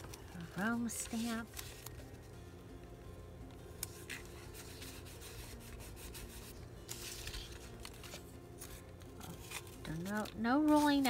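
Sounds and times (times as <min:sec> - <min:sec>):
paper rustle: 0:00.0 - 0:02.3, 0:03.8 - 0:11.0
hands rubbing tape on paper: 0:03.8 - 0:11.0.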